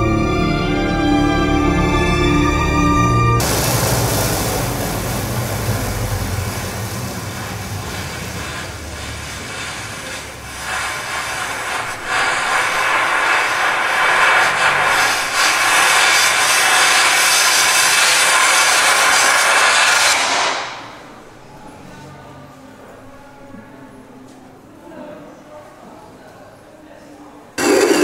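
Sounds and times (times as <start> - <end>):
hissing synthesizer noise: 3.4 - 15.7, 27.6 - 28.0.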